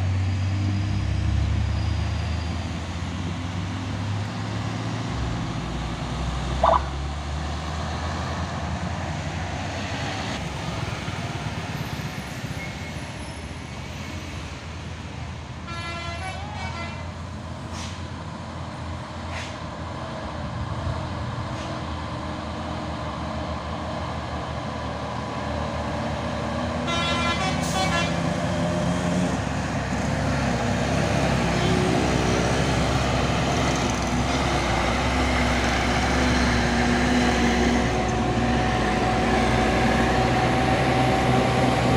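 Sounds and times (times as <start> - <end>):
trucks and cars engines running: 0.0 - 41.9
vehicle horn: 15.7 - 17.1, 26.8 - 28.2.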